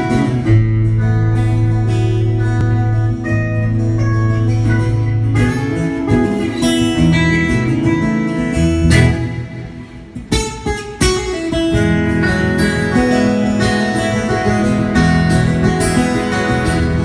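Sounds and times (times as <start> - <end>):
acoustic guitar playing: 0.0 - 17.0.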